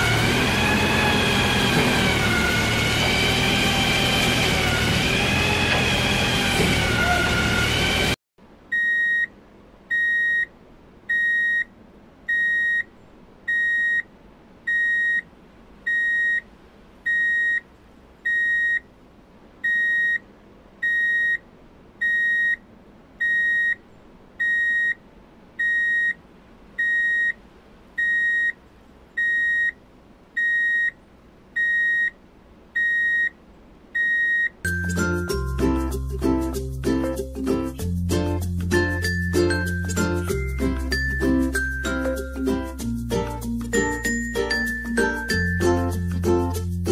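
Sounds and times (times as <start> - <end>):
reversing alarm beeps: 8.8 - 9.3, 9.9 - 10.5, 11.1 - 11.7, 12.3 - 12.9, 13.5 - 14.0, 14.7 - 15.2, 15.9 - 16.4, 17.1 - 17.6, 18.3 - 18.8, 19.6 - 20.2, 20.8 - 21.4, 22.0 - 22.6, 23.2 - 23.8, 24.4 - 25.0, 25.6 - 26.2, 26.8 - 27.4, 28.0 - 28.6, 29.2 - 29.8, 30.4 - 31.0, 31.6 - 32.2, 32.8 - 33.4, 34.0 - 34.6.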